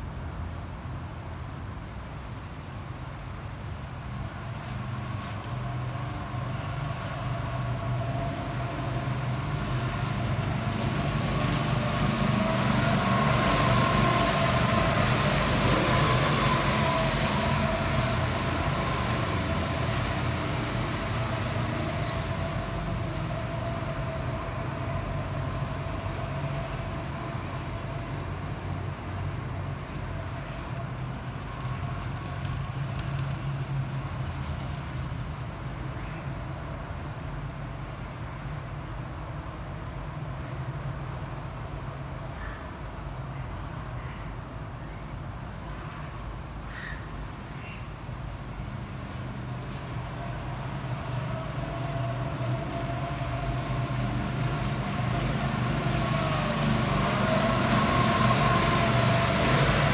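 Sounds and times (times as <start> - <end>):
go-kart engines passing: 4.7 - 30.7, 31.3 - 36.4, 48.1 - 59.9.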